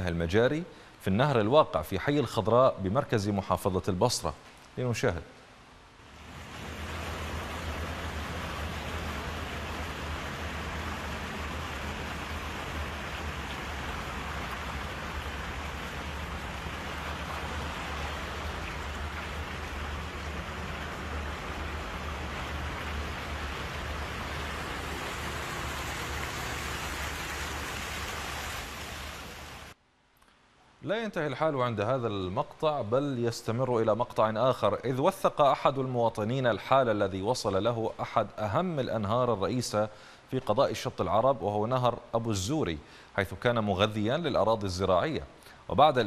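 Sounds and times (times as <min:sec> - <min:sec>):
water pouring from pipe: 0:06.2 - 0:29.8.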